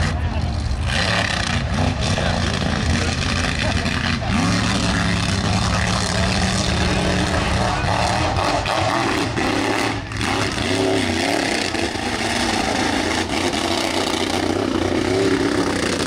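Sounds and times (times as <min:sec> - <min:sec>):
truck engine revving: 0:00.0 - 0:16.0.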